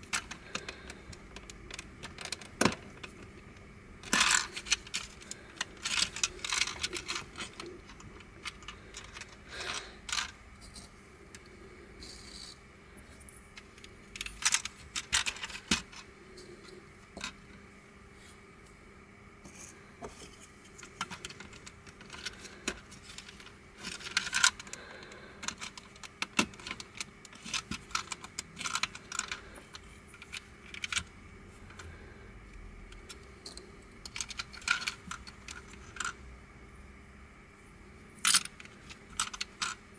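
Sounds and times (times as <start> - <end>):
plastic puzzle pieces clicking: 25.4 - 29.4, 33.0 - 36.2, 38.2 - 39.8.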